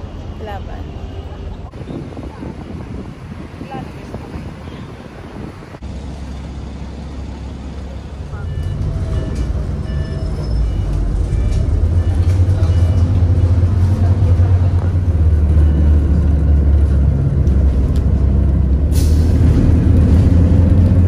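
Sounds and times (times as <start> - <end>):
bus engine and road rumble: 0.0 - 21.0
air brake hiss: 18.9 - 19.3.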